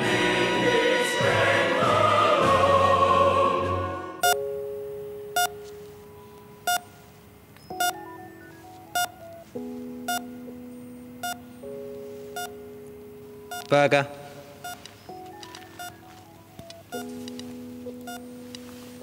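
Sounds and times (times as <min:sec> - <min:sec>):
choral music: 0:00.0 - 0:06.8, 0:07.7 - 0:19.0
cardiac monitor beeping: 0:04.2 - 0:11.6, 0:12.3 - 0:12.7, 0:13.4 - 0:13.8, 0:14.6 - 0:18.4
faint steady electronic tones: 0:04.2 - 0:19.0.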